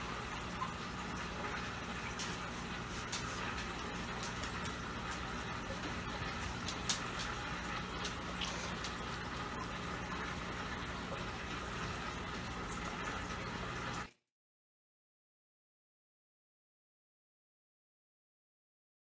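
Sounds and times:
low pump hum: 0.0s - 14.1s
water splashing into tank: 0.0s - 14.2s.

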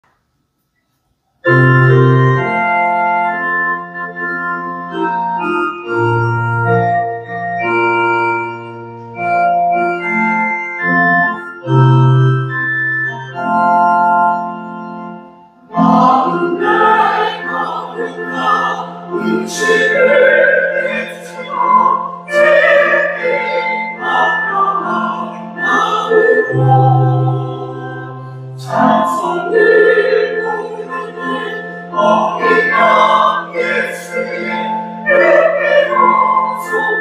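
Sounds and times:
organ playing chords: 1.4s - 37.0s
choir singing a hymn: 15.6s - 37.0s.

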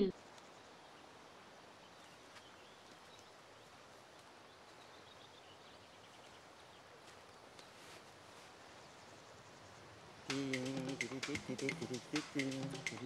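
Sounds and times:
soft outdoor hiss: 0.0s - 13.0s.

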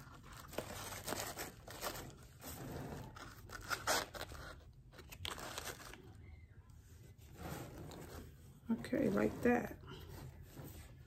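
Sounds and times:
plastic and paper rustling: 0.0s - 6.3s.

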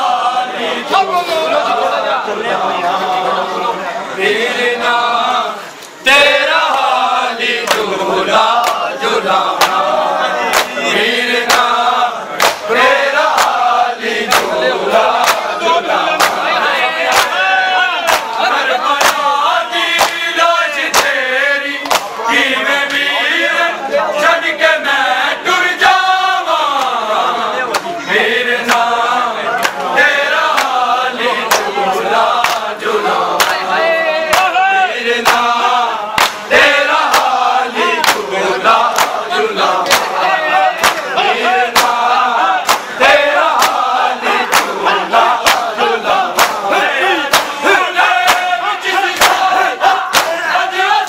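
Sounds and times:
men chanting in unison: 0.0s - 51.0s
hands slapping bare chests: 7.6s - 7.9s, 9.6s - 9.9s, 10.5s - 10.8s, 11.4s - 11.8s, 12.4s - 12.7s, 13.3s - 13.6s, 14.3s - 15.5s, 16.2s - 16.4s, 17.1s - 17.4s, 18.1s - 18.4s, 19.0s - 19.3s, 20.0s - 20.2s, 20.8s - 21.2s, 21.8s - 22.2s, 29.6s - 29.8s, 30.4s - 30.8s, 31.5s - 31.7s, 32.4s - 32.7s, 33.4s - 33.6s, 34.3s - 34.5s, 35.2s - 35.5s, 36.2s - 37.4s, 38.0s - 39.2s, 39.8s - 40.2s, 40.8s - 41.1s, 41.7s - 45.7s, 46.3s - 46.7s, 47.3s - 47.6s, 48.2s - 48.5s, 49.1s - 49.5s, 50.1s - 50.4s.

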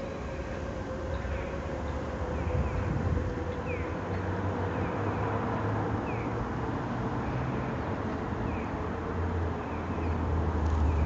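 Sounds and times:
distant traffic rumble: 0.0s - 11.0s.

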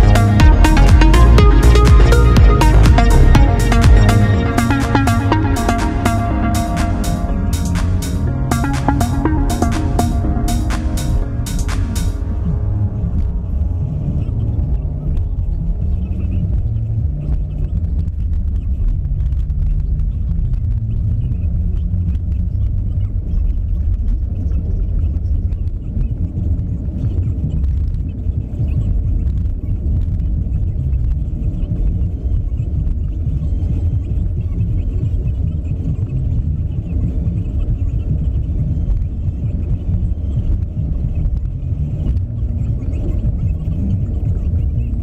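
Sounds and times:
road and engine noise inside car: 12.6s - 45.0s.

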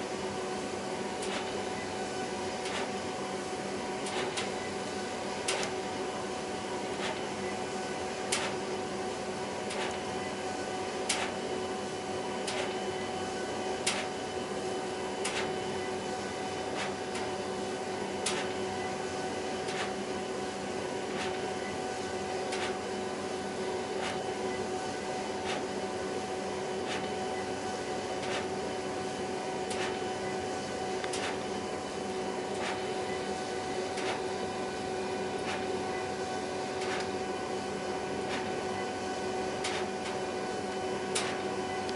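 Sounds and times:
printer whirring hum: 0.0s - 41.9s
printer sharp click: 1.2s - 1.6s, 2.6s - 2.9s, 4.0s - 4.5s, 5.5s - 5.8s, 8.3s - 8.6s, 9.7s - 10.0s, 11.1s - 11.4s, 12.4s - 12.8s, 13.8s - 14.2s, 15.2s - 15.6s, 18.2s - 18.6s, 19.7s - 20.0s, 29.7s - 30.0s, 31.0s - 31.4s, 34.0s - 34.3s, 35.4s - 35.7s, 36.8s - 37.2s, 38.3s - 38.5s, 39.6s - 40.2s, 41.1s - 41.9s.

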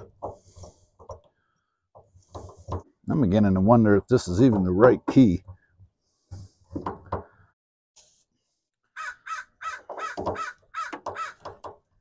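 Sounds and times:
crows cawing: 8.9s - 11.6s.

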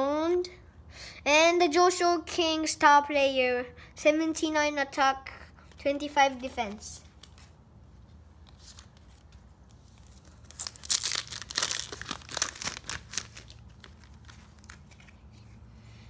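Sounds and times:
sharp crackling of foil: 10.0s - 14.9s
foil wrapper tearing and crinkling: 10.0s - 15.0s.

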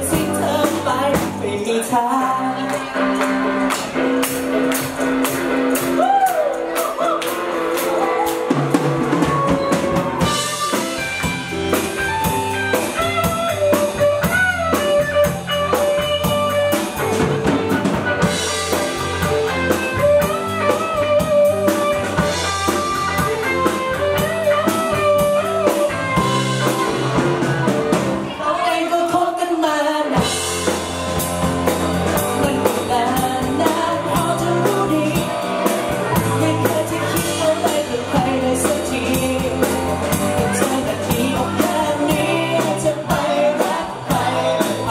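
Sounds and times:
drum kit: 0.0s - 28.4s, 30.0s - 44.9s
bass guitar: 0.0s - 29.2s, 30.0s - 44.9s
electric guitar: 0.0s - 44.9s
keyboard: 0.0s - 44.9s
bending melodic lead line: 7.4s - 29.1s.

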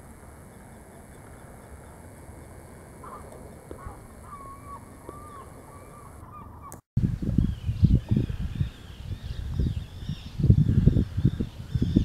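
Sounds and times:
bird thin wavering call: 3.0s - 6.8s.

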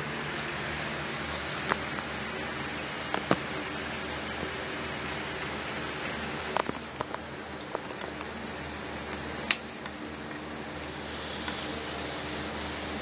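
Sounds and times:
faint motor hum: 0.0s - 13.0s
model train hiss: 10.8s - 13.0s.

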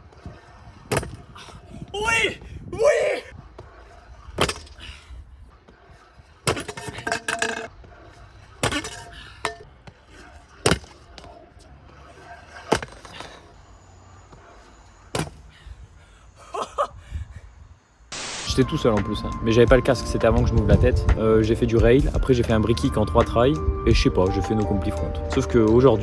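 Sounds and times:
scooter wheels rolling on concrete: 0.0s - 15.9s
scooter landing clacks: 0.2s - 1.4s, 4.3s - 4.9s, 6.4s - 7.9s, 8.6s - 11.5s, 12.6s - 13.4s.

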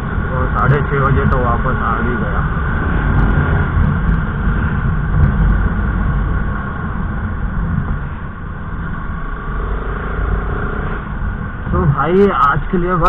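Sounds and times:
motorcycle engine rumble: 0.0s - 13.0s
road noise: 0.0s - 13.0s.

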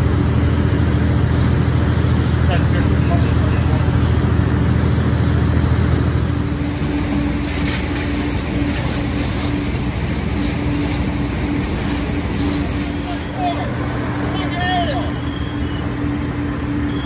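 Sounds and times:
fire engine droning: 0.0s - 17.0s
water hissing from hoses: 6.2s - 17.0s.

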